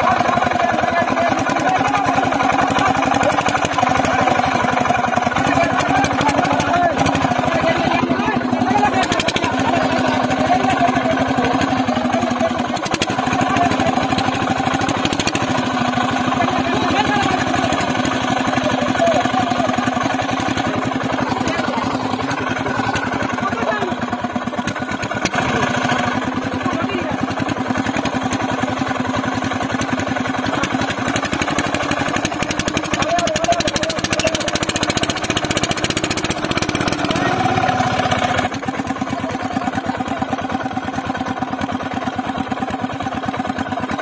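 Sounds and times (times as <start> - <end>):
men calling out: 0.0 - 24.3, 30.4 - 41.2
diesel engine running: 0.0 - 44.0.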